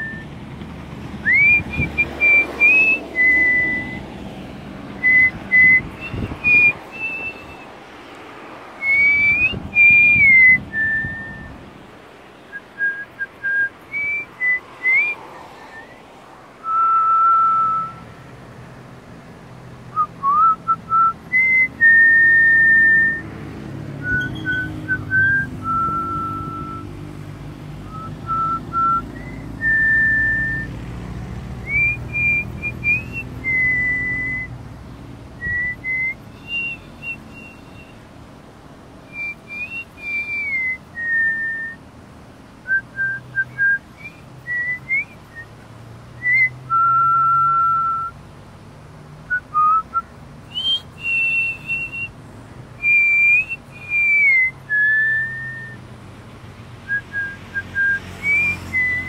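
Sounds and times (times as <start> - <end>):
person whistling a slow tune: 0.0 - 0.3, 1.2 - 4.1, 5.0 - 7.7, 8.8 - 11.6, 12.5 - 16.0, 16.6 - 18.1, 19.9 - 23.3, 24.0 - 27.0, 27.8 - 30.8, 31.6 - 34.5, 35.4 - 37.9, 39.1 - 41.8, 42.6 - 45.5, 46.2 - 48.2, 49.3 - 52.2, 52.8 - 55.8, 56.9 - 59.0.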